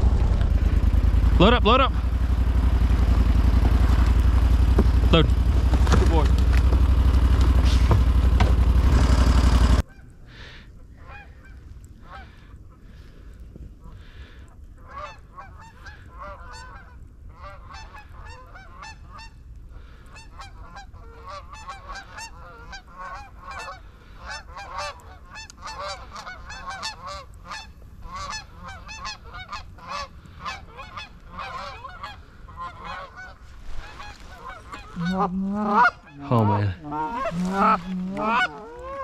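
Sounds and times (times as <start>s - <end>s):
low rumble: 0.0s - 9.9s, 27.8s - 39.0s
geese honking: 14.8s - 39.0s.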